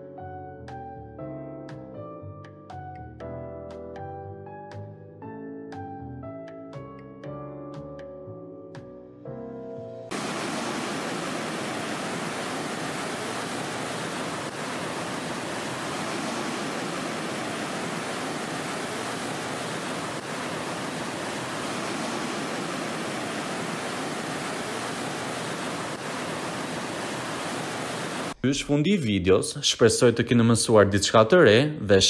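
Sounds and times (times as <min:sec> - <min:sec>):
waterfall rushing: 0:10.1 - 0:28.6.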